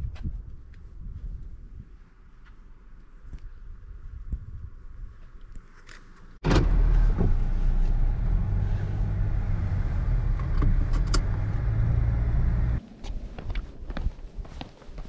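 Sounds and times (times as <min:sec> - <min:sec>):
car engine and road rumble: 0:06.0 - 0:14.4.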